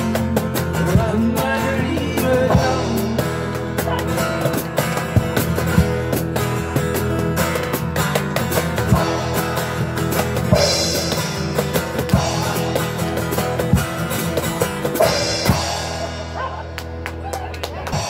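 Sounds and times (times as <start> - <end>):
acoustic guitar: 0.0 - 18.0
drums keeping a steady beat: 0.0 - 18.0.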